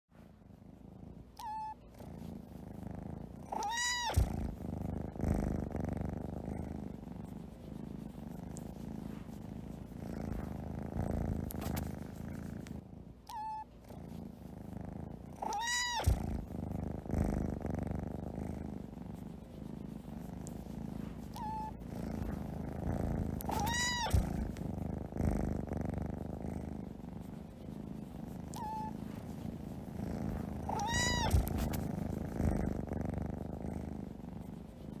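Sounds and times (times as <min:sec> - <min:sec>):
cat purring: 0:00.2 - 0:35.0
cat meowing: 0:03.6 - 0:04.3, 0:15.4 - 0:16.2, 0:23.5 - 0:24.4, 0:30.6 - 0:31.7.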